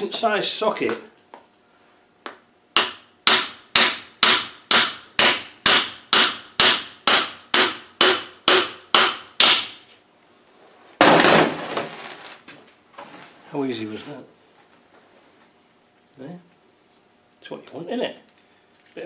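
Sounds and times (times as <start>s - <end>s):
hammer striking steel: 2.8s - 9.8s.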